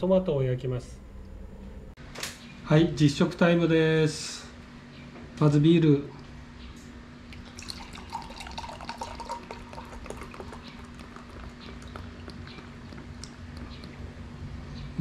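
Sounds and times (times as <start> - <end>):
beer pouring into a glass: 7.4 - 12.2.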